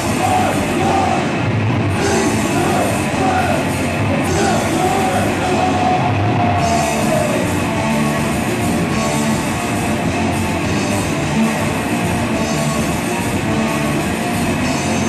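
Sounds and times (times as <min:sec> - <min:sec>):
person singing: 0:00.0 - 0:07.6
bass guitar: 0:00.0 - 0:15.0
drums: 0:00.0 - 0:15.0
electric guitar: 0:00.0 - 0:15.0.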